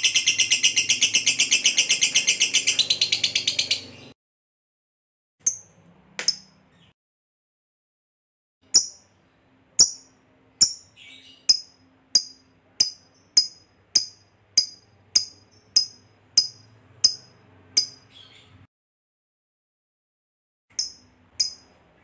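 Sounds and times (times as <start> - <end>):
lovebird chirping: 0.0 - 4.2, 8.7 - 18.7, 20.7 - 21.8.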